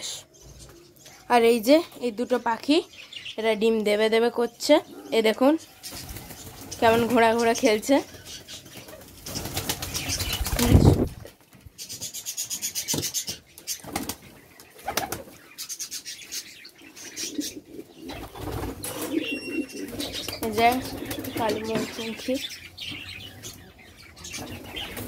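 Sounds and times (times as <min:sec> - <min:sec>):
pigeons flapping wings: 0:05.9 - 0:07.4, 0:08.7 - 0:11.3, 0:13.6 - 0:15.4, 0:18.1 - 0:22.1, 0:24.5 - 0:25.0
pigeons cooing: 0:12.1 - 0:25.0.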